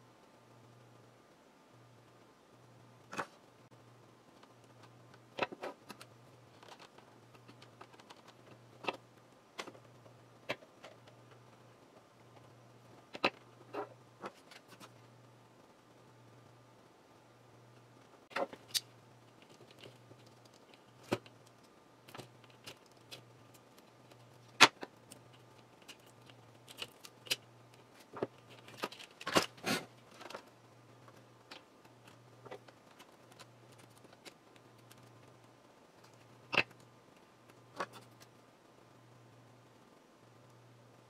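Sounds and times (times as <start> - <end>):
wire clicks and rustles: 4.2 - 15.2, 17.7 - 38.5.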